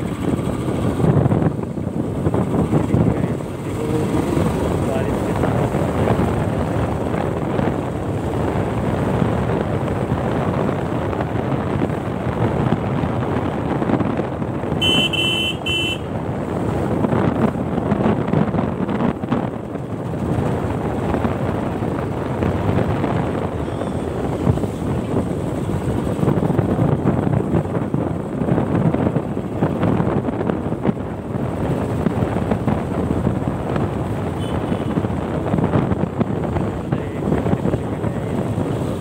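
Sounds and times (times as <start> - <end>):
motorcycle engine running: 0.0 - 39.0
wind noise on microphone: 0.0 - 39.0
horn beeping: 14.8 - 16.1.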